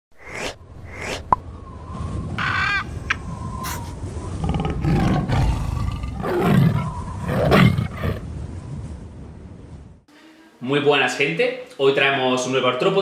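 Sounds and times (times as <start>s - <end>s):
tiger roaring: 4.4s - 8.2s.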